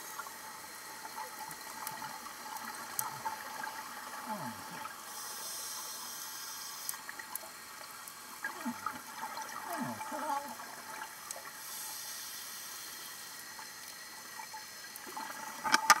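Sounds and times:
hissing inhale through regulator: 4.7 - 7.0, 11.5 - 13.4.

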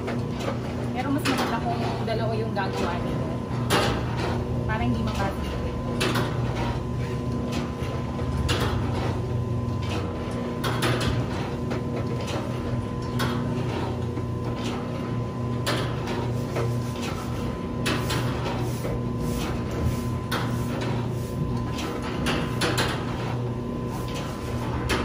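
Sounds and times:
machine motor hum: 0.0 - 25.0.

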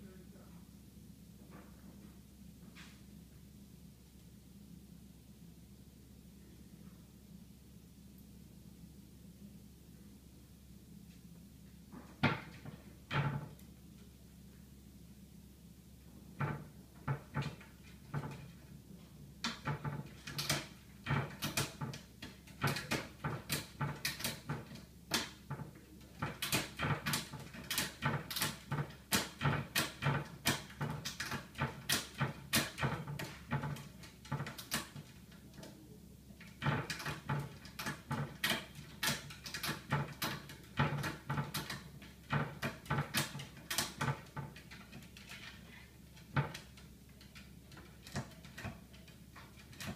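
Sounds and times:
cabinet door clacking against latch: 19.4 - 35.2, 36.4 - 49.9.

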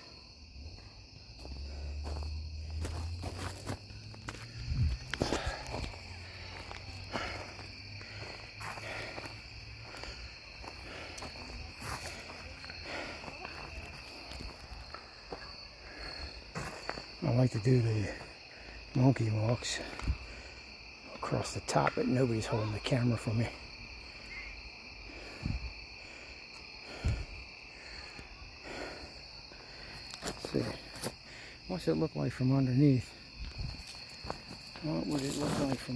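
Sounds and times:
crickets chirping: 0.0 - 35.9
footsteps crunching on wood chips: 1.3 - 17.2, 33.2 - 35.9.

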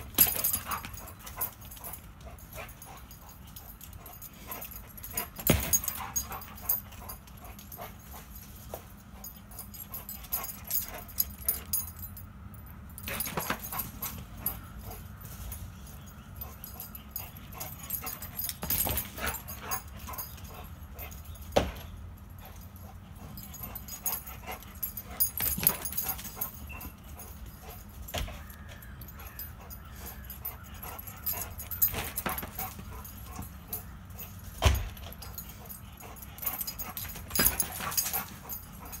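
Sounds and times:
dog whining and yipping: 23.4 - 34.3.

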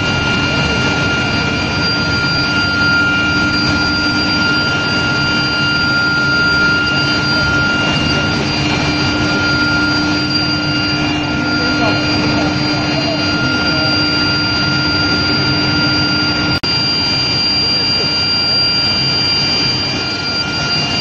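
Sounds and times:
high-pitched whine: 0.0 - 21.0
industrial machinery roar: 0.0 - 21.0
low hum: 0.0 - 21.0.

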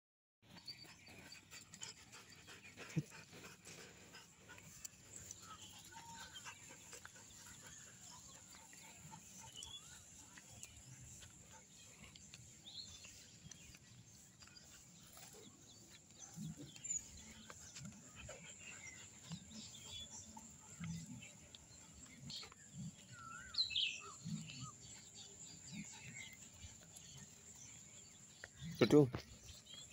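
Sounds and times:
dogs making short low sounds: 0.6 - 23.1
bird chirps: 5.2 - 29.9.

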